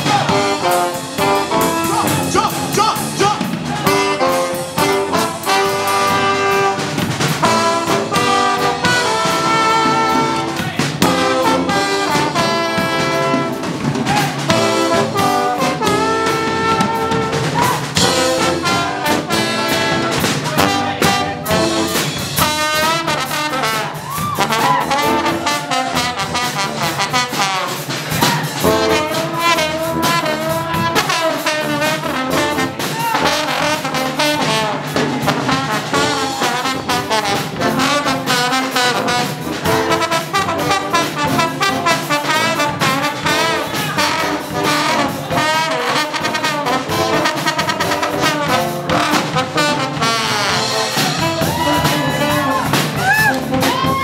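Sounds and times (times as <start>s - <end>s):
brass band playing jazz: 0.0s - 54.0s
slide trombone: 0.0s - 54.0s.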